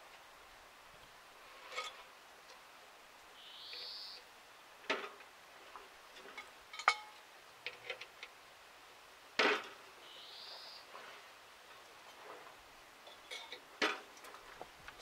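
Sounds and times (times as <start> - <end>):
metal tools clinking and clanking: 6.2 - 7.1, 13.1 - 13.6.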